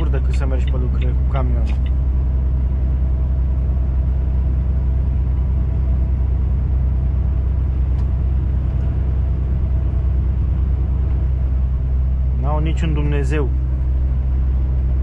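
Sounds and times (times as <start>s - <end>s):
lorry engine drone: 0.0s - 15.0s
road noise: 0.0s - 15.0s.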